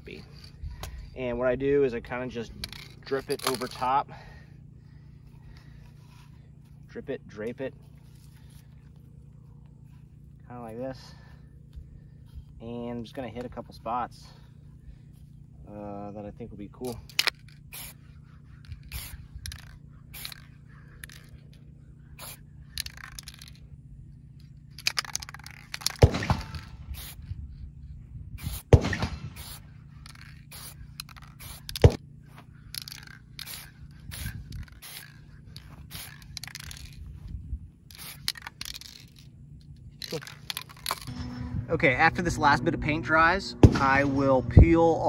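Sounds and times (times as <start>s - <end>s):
spray paint can hissing: 17.0s - 18.0s, 18.6s - 21.4s, 22.2s - 23.6s, 24.8s - 26.0s, 26.6s - 27.3s, 28.4s - 28.7s, 29.4s - 32.0s, 32.7s - 37.0s, 37.9s - 39.3s.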